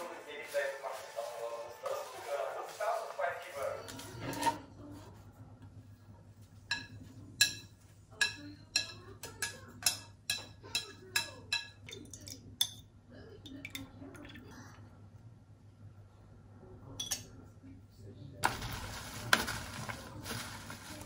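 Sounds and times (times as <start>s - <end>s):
kitchen utensils clinking: 3.8s - 4.7s, 6.7s - 12.8s.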